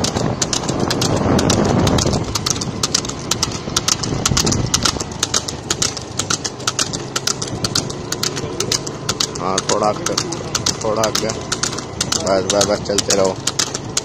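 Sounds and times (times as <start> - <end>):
hooves clip-clopping: 0.0 - 14.0
vehicle engine running: 0.0 - 14.0.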